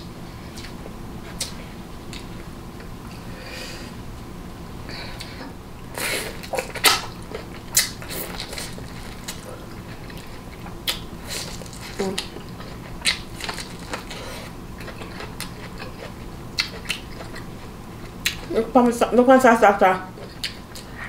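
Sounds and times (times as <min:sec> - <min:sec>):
steady low hum: 0:00.0 - 0:21.0
chewing and biting: 0:06.3 - 0:18.5, 0:20.2 - 0:21.0.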